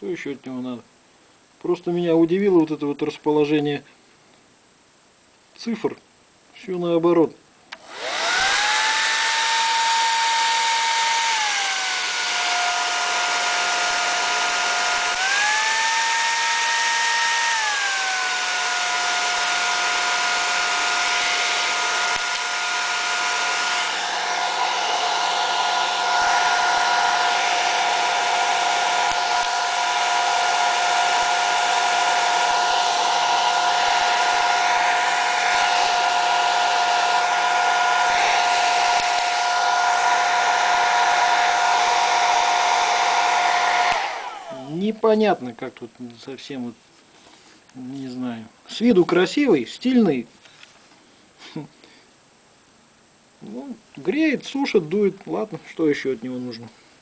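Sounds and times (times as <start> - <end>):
hair dryer running: 7.8 - 44.8.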